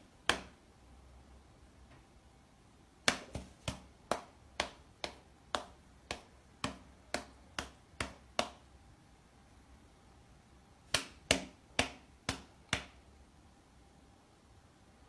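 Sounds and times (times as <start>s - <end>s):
cat paw slapping a palm: 3.1s - 8.6s.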